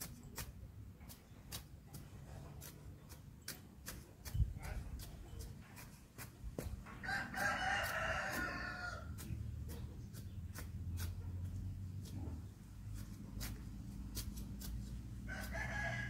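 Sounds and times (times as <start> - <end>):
rooster crowing: 7.0 - 9.1, 15.3 - 16.0.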